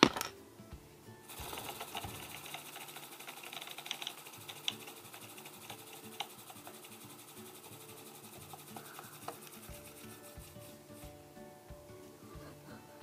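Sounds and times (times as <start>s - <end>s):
model propeller whirring: 1.3s - 10.3s.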